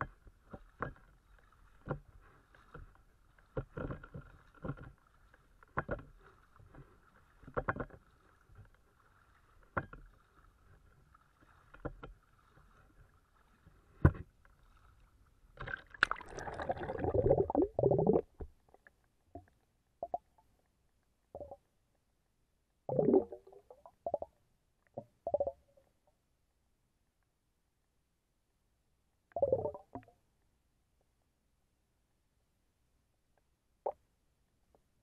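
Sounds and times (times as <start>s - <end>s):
muffled underwater thumps: 14.0s - 14.3s
splash and rushing water: 15.6s - 17.2s.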